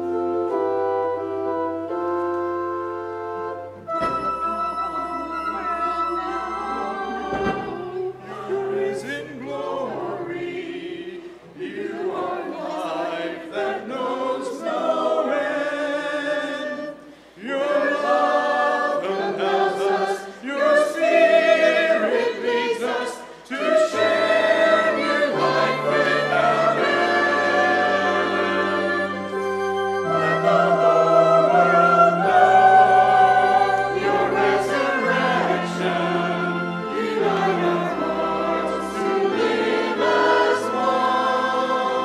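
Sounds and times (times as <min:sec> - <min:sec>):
low organ notes: 0:00.0 - 0:10.8, 0:23.6 - 0:42.0
church choir singing: 0:00.0 - 0:42.0.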